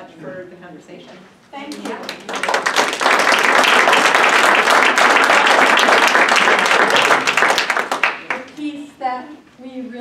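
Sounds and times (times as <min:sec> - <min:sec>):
audience applauding: 0:01.9 - 0:08.5.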